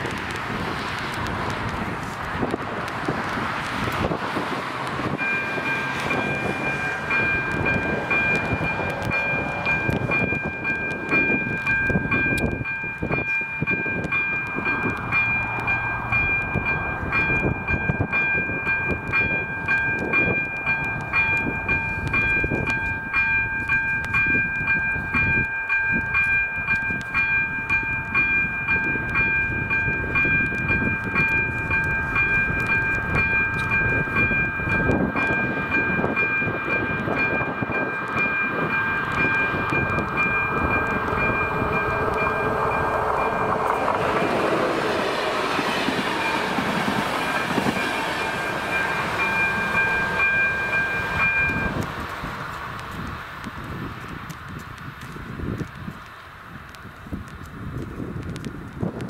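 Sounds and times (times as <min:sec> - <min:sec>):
train rumble: 0:00.0 - 0:59.0
level crossing warning bell: 0:05.0 - 0:52.0.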